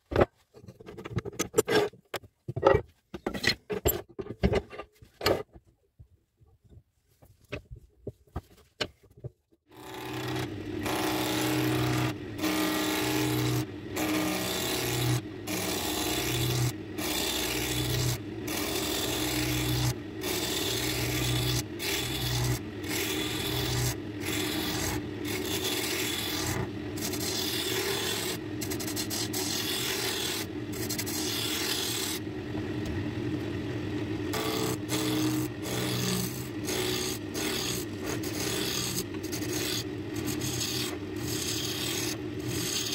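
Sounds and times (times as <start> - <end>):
wood lathe humming: 9.7 - 32.2, 34.3 - 42.9
gouge rasping on spinning wood: 34.4 - 42.9.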